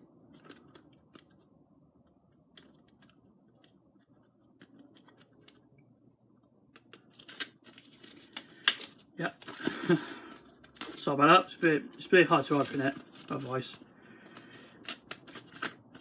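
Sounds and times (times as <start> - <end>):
plastic wrap crinkling: 6.9 - 16.0
plastic wrap clicks and snips: 14.8 - 16.0.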